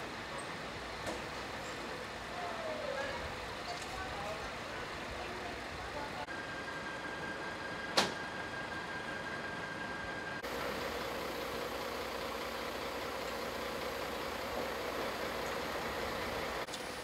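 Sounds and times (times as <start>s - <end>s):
engine idling: 10.4s - 17.0s.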